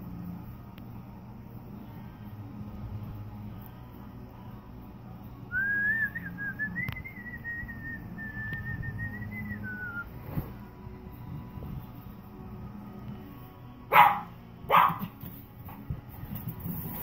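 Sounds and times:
person whistling: 5.5 - 10.2.

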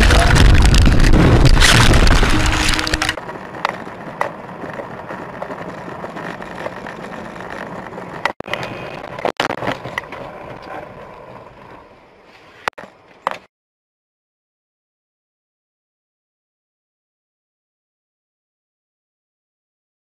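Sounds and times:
car road and engine noise: 0.0 - 13.5.

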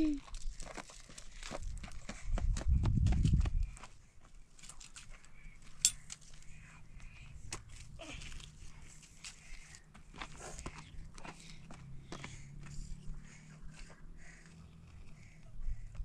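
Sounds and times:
footsteps on gravel: 0.2 - 5.3.

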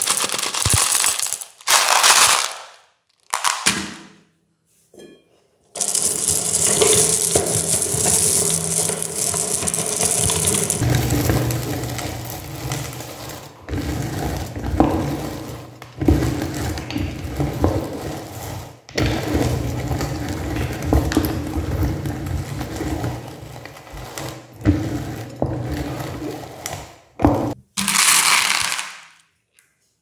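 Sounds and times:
meat grinder crunching candy: 0.0 - 3.7, 5.8 - 27.0, 27.8 - 29.1.

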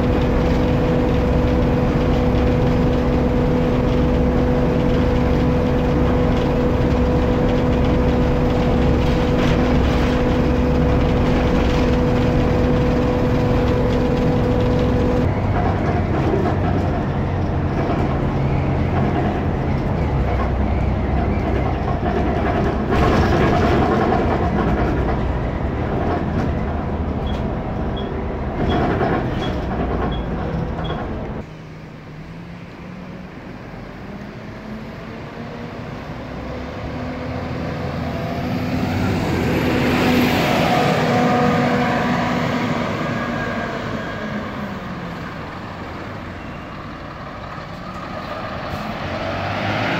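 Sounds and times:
steady whine: 0.0 - 21.4
bus diesel engine roar: 0.0 - 49.9.

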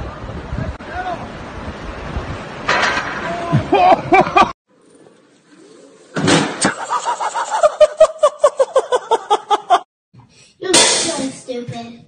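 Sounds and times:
high-pitched laughter: 6.6 - 9.8.

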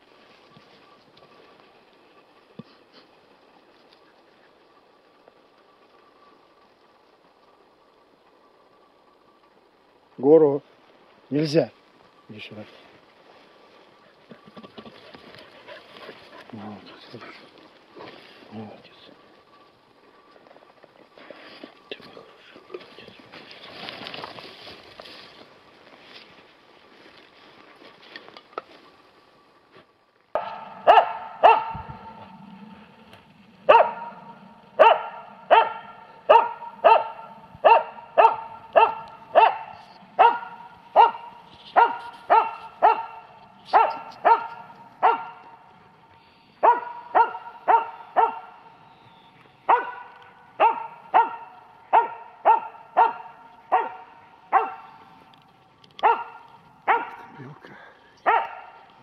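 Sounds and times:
dog barking: 30.4 - 32.1, 33.7 - 45.6, 46.6 - 48.7, 49.7 - 55.0, 56.0 - 57.4, 58.2 - 58.8.

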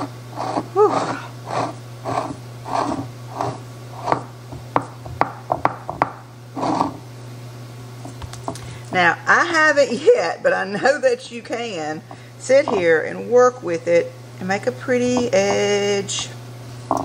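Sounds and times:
steady low hum: 0.0 - 17.0
fingers patting dough: 2.1 - 6.2.

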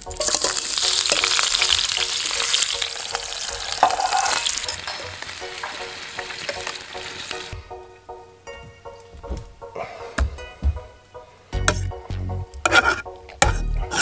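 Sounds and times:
potatoes sizzling in skillet: 0.0 - 7.6
spatula stirring in pan: 12.6 - 14.0.

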